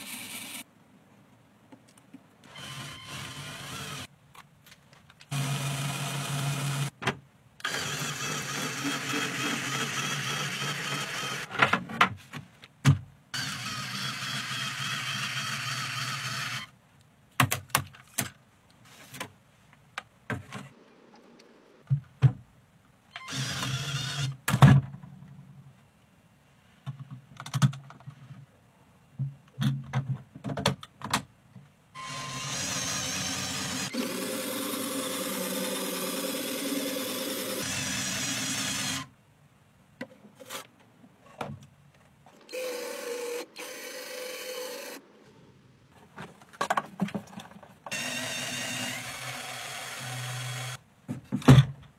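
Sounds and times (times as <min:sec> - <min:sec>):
small electric motor whirring: 0:42.5 - 0:45.0, 0:47.9 - 0:50.8.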